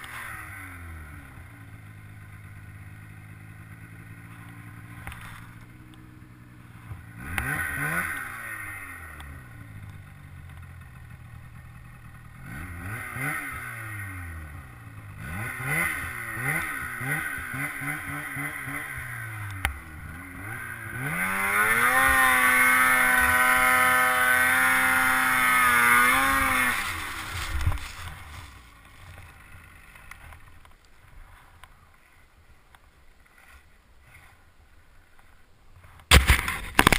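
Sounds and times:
snowmobile engine revving: 0.0 - 30.6
sharp knock: 36.1 - 36.9.

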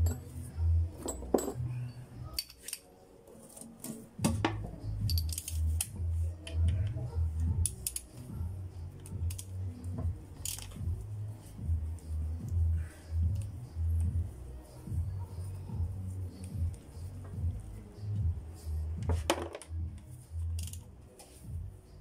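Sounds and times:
metal hand tools clinking: 0.0 - 2.9, 5.0 - 5.9, 10.3 - 10.8
background music with pulsing beat: 4.1 - 22.0
socket ratchet clicking: 10.4 - 10.8, 20.5 - 20.8.

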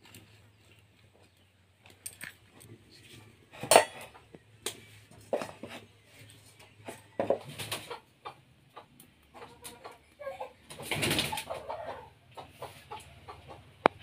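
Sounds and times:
metal pot set on stove: 3.5 - 6.2.

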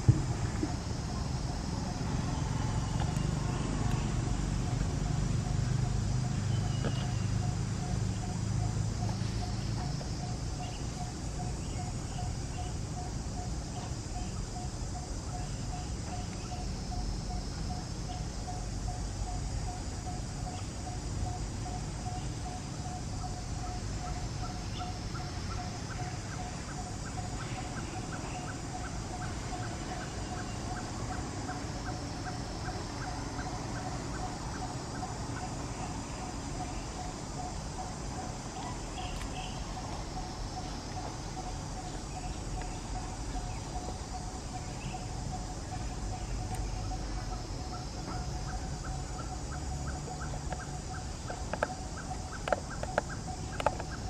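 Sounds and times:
steady high hiss: 0.0 - 54.0.

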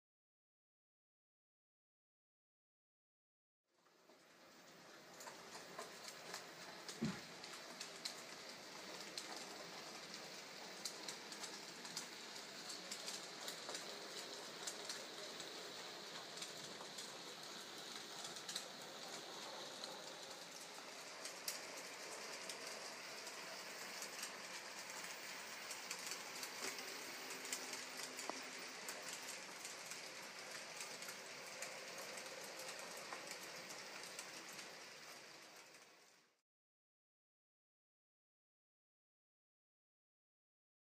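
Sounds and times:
model train rolling on track: 3.8 - 36.4
wheels clicking over rail joints: 4.0 - 35.9.

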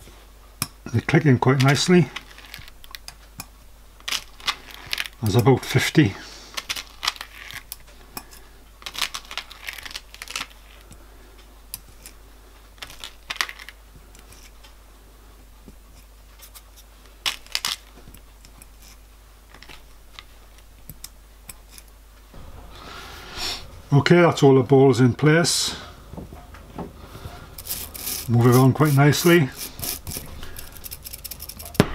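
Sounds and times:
ball bearings clicking into metal: 27.6 - 31.9.

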